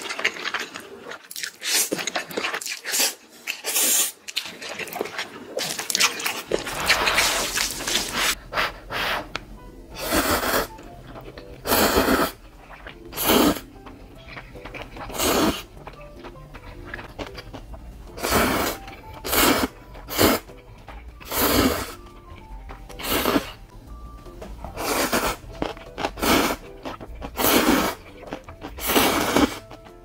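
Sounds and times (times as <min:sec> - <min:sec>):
person slurping noodles: 0:00.0 - 0:08.4, 0:10.0 - 0:10.8, 0:11.6 - 0:13.7, 0:14.3 - 0:16.1, 0:18.1 - 0:20.5, 0:21.2 - 0:22.0, 0:23.0 - 0:23.6, 0:24.8 - 0:29.7
quiet background music: 0:04.2 - 0:30.0.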